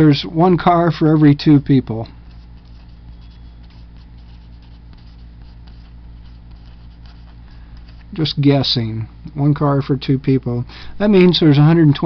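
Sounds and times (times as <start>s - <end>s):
low electrical hum: 0.0s - 12.0s
marker pen scratching on paper: 2.2s - 8.2s.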